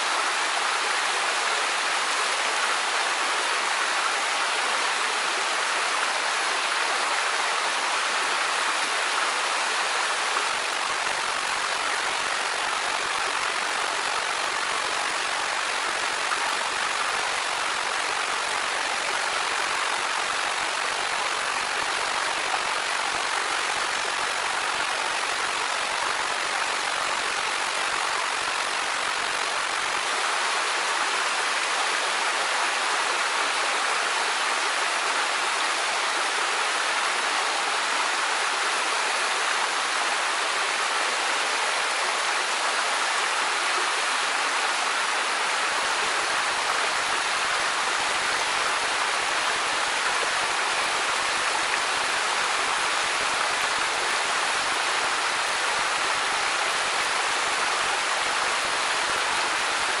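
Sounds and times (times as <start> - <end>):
waterfall rushing: 0.0 - 60.0.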